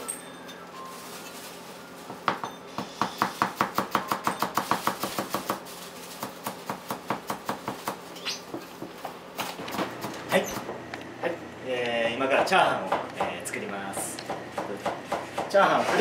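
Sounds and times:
cleaver chopping on a block: 14.0s - 16.0s.

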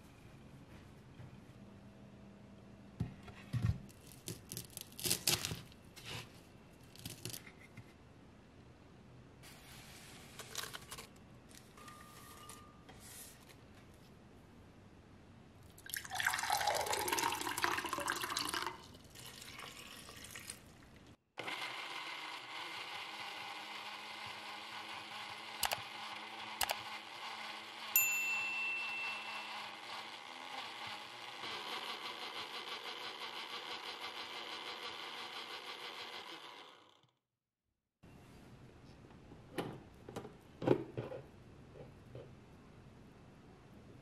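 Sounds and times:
liquid pouring into a jar: 15.8s - 20.9s.

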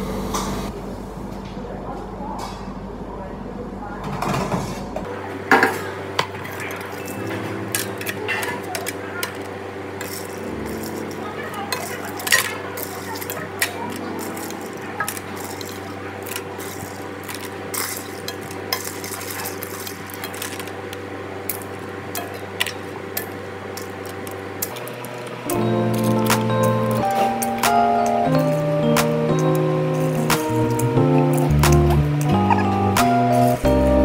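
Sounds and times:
steady background hum: 0.0s - 34.0s
metal utensils clinking on plate: 5.5s - 20.7s, 21.5s - 25.0s
music: 6.7s - 17.5s, 24.7s - 34.0s.

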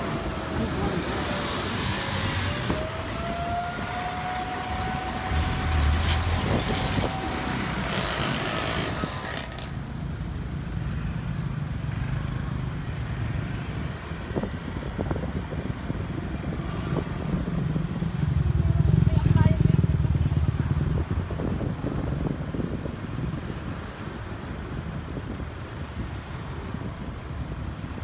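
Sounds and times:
bus passing: 0.0s - 10.4s
low steady traffic rumble: 0.0s - 28.0s.

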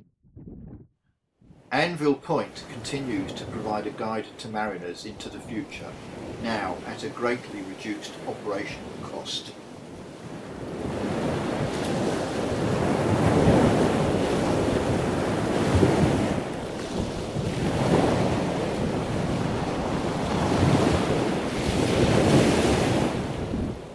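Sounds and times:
wind buffeting microphone: 0.0s - 1.7s, 9.7s - 23.9s
waves washing on rocky shore: 1.8s - 23.9s.

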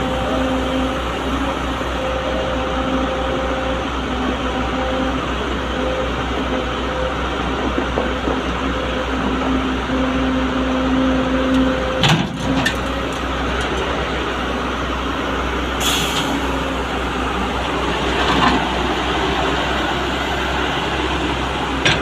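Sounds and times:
heavy diesel machinery running: 0.0s - 22.0s.

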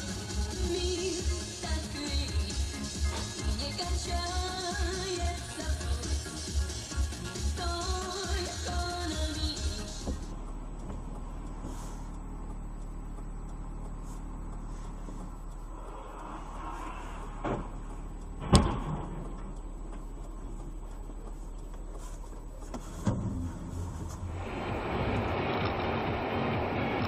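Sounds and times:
vehicle engine hum: 0.0s - 27.0s.

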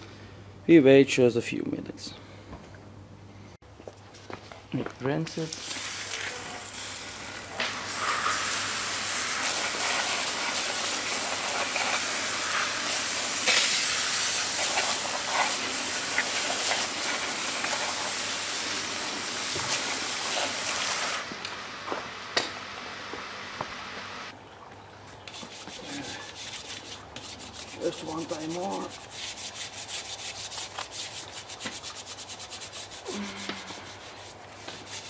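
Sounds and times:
hose nozzle spraying water: 5.5s - 21.3s.

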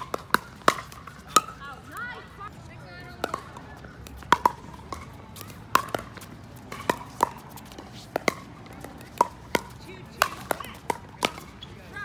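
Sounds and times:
paddles striking plastic ball: 4.3s - 7.4s, 8.1s - 11.6s.

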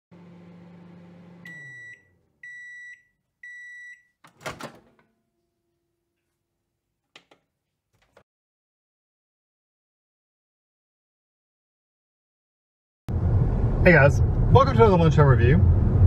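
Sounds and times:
microwave oven humming: 0.1s - 5.3s
microwave beeps: 1.1s - 4.6s
microwave door clunk: 4.3s - 5.1s.

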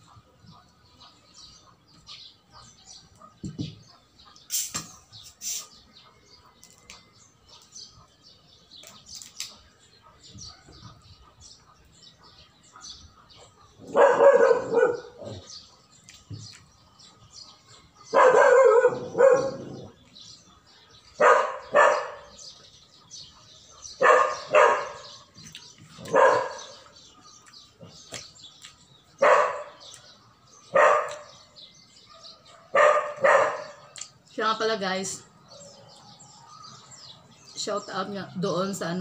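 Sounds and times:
dog barking: 12.2s - 15.5s, 18.1s - 20.0s, 21.2s - 22.4s, 23.7s - 25.3s, 26.0s - 26.9s, 29.2s - 30.0s, 30.7s - 31.4s, 32.0s - 33.9s.

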